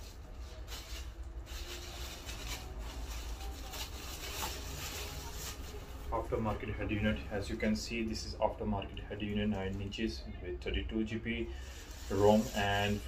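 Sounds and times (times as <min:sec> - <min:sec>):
plastic bag rustling: 0:00.0 - 0:07.7, 0:11.6 - 0:13.0.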